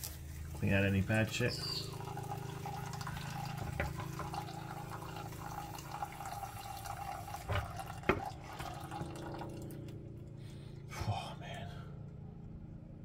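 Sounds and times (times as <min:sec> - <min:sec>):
oil trickling into container: 0:00.0 - 0:10.7
low hum: 0:00.0 - 0:13.0.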